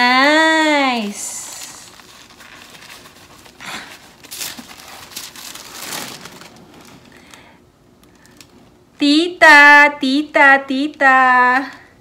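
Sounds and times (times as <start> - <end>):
tissue paper crinkling: 1.2 - 8.7.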